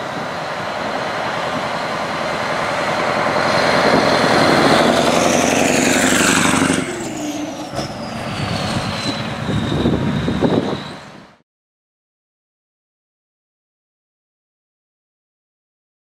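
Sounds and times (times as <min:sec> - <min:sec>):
diesel truck driving past: 0:00.0 - 0:11.4.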